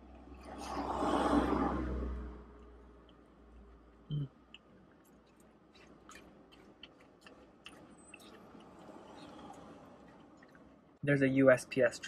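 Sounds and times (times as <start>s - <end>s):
vehicle passing outside: 0.0s - 4.1s, 7.7s - 11.0s
faint chewing: 2.4s - 11.0s.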